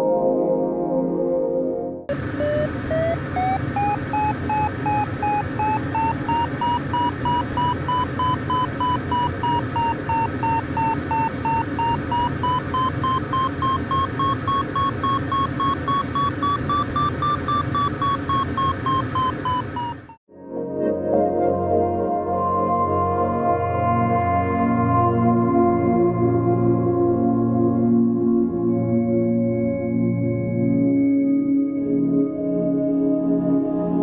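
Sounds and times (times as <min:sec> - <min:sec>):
variometer beeping rapidly: 0:02.1 - 0:20.2.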